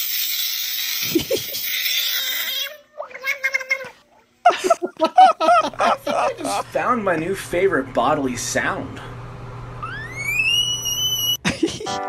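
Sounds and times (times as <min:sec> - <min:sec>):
frog screeching: 0:01.7 - 0:03.9, 0:09.8 - 0:11.4.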